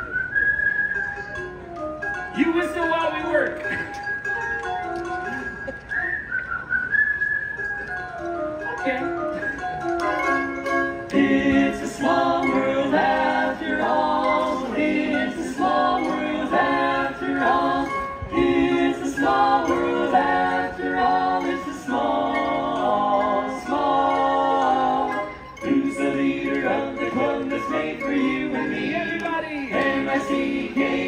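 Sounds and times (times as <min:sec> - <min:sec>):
barbershop quartet singing a cappella: 0:11.0 - 0:31.0.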